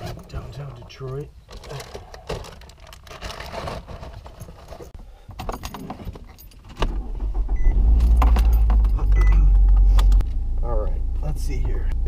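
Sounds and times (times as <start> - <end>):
car engine rumbling: 5.9 - 12.0.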